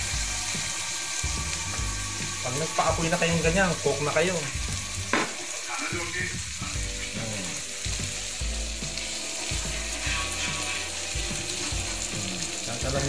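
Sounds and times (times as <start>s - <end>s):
meat sizzling on hot plate: 0.0s - 13.0s.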